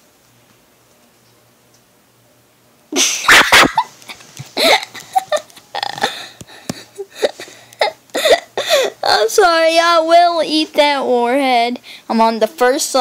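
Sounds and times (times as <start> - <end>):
boy laughing hard: 3.0 - 9.0.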